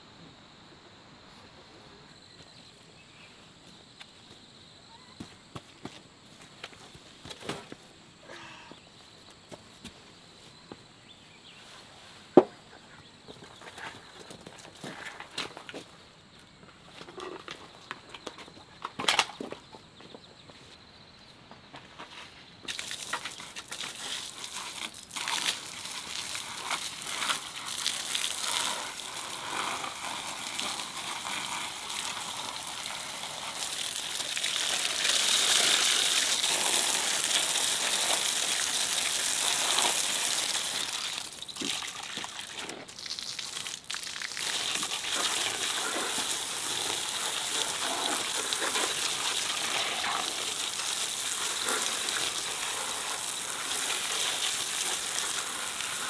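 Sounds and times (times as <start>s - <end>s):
hose water splashing on vegetables: 22.7s - 56.0s.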